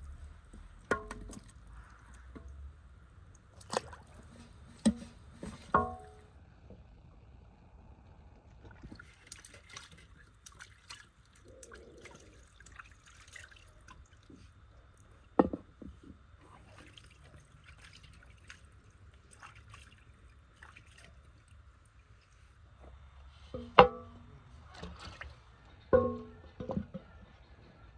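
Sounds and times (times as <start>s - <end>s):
water dripping in metal basin: 0.5s - 4.1s, 5.7s - 6.3s, 8.4s - 22.4s, 25.7s - 27.0s.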